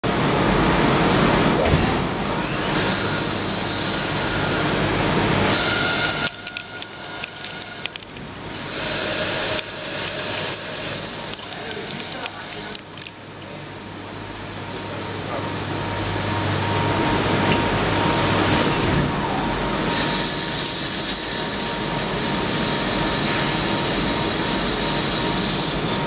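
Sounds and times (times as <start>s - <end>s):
crackling metal chips: 5.6s - 13.4s.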